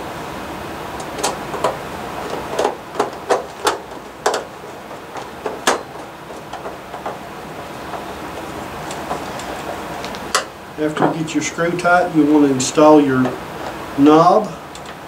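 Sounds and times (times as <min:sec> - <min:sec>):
screwdriver clicking on sheet metal: 0:01.0 - 0:10.5.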